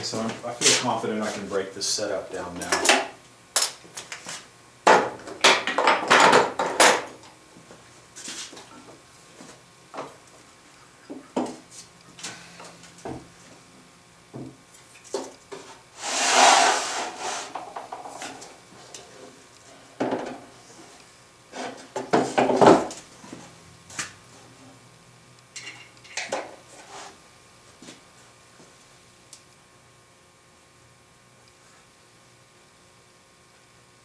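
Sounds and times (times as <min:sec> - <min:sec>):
scraping rub on wood: 0:15.5 - 0:18.2, 0:26.7 - 0:27.2.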